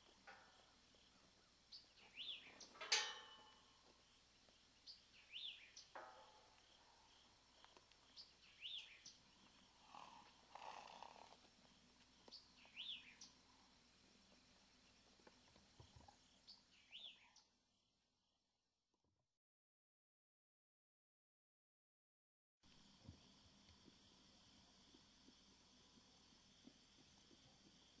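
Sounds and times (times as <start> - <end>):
bird chirping: 0.0 - 13.6, 14.3 - 17.9.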